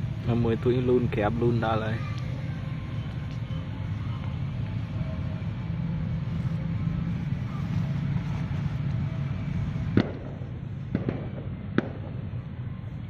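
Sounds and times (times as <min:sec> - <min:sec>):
sharp short pops: 0:09.9 - 0:12.2.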